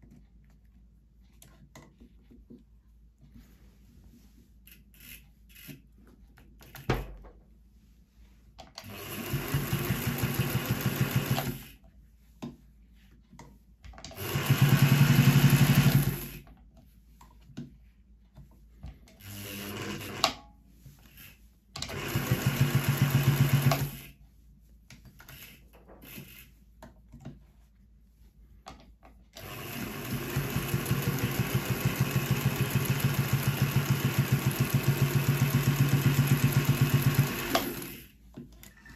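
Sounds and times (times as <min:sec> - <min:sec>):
sewing machine stitching: 0:08.8 - 0:11.8, 0:14.0 - 0:16.4, 0:19.0 - 0:20.4, 0:21.0 - 0:24.2, 0:29.4 - 0:38.9.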